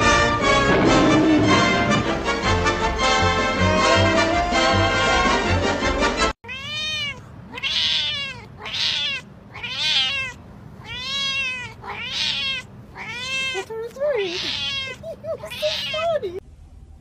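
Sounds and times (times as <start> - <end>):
music: 0.0 - 6.4
cat meowing: 6.4 - 16.4.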